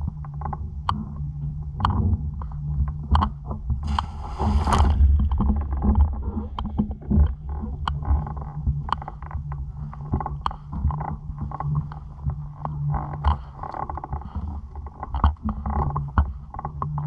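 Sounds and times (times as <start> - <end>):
low hum: 0.0 - 16.6
water sloshing against camera: 3.8 - 7.8.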